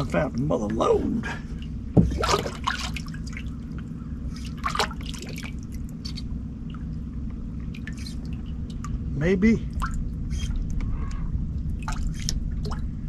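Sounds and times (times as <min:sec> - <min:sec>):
steady low hum: 0:00.0 - 0:13.0
water dripping and trickling: 0:01.6 - 0:10.8, 0:11.5 - 0:13.0
water splash: 0:02.0 - 0:03.5, 0:04.3 - 0:06.9.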